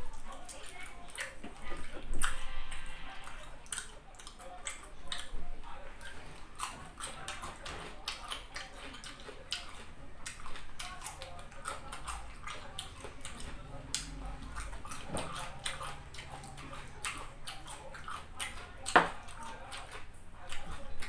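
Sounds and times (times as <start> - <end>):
chewing cucumber crunching: 0.0 - 21.0.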